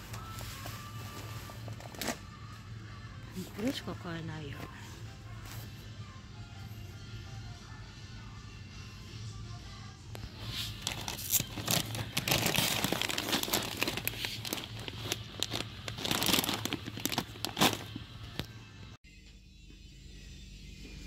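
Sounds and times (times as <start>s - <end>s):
plastic bag crinkling: 10.4s - 18.5s.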